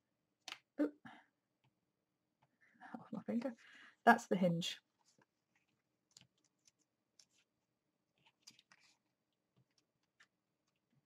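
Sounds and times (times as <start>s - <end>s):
paper being folded: 5.0s - 11.0s.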